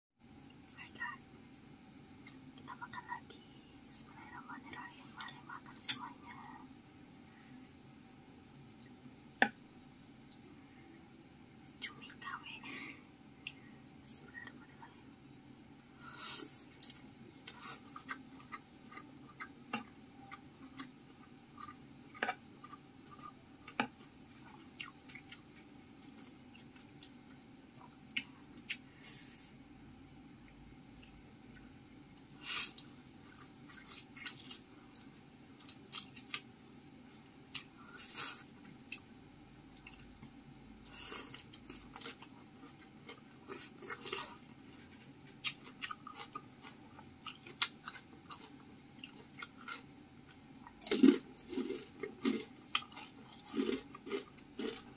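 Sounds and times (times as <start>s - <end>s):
wet chewing and mouth smacking: 41.3s - 54.9s.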